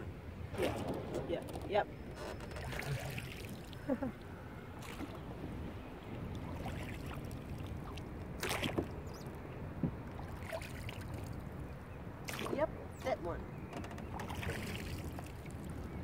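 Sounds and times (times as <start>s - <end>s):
steady low rumble: 0.0s - 10.4s
oars creaking in oarlocks: 0.5s - 3.7s, 6.5s - 10.9s, 13.5s - 15.9s.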